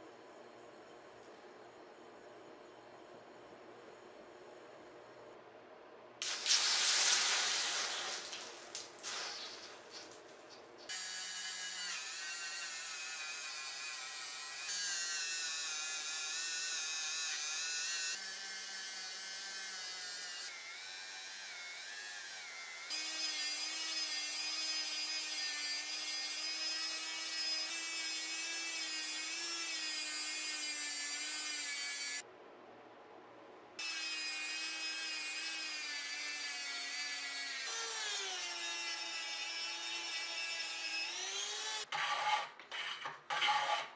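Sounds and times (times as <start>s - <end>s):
rotary tool polishing steel: 10.9s - 32.2s, 33.8s - 43.9s.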